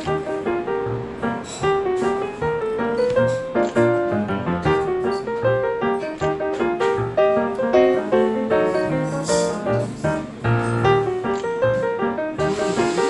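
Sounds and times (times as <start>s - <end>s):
jazz piano music: 0.0s - 13.0s.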